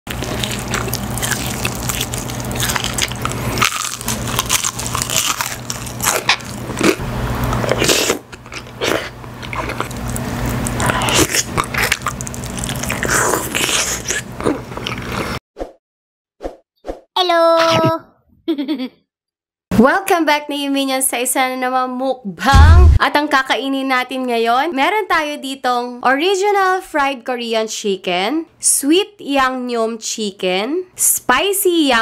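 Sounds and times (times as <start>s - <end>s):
crunchy bites into fried chicken: 0.1s - 14.6s
wet chewing: 0.1s - 15.4s
steady low hum: 22.5s - 23.0s.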